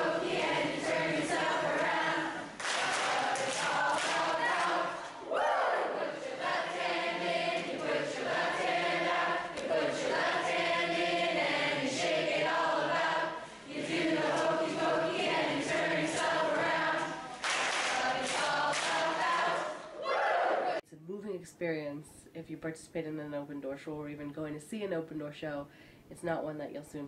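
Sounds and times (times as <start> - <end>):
adults and children singing: 0.0 - 20.8.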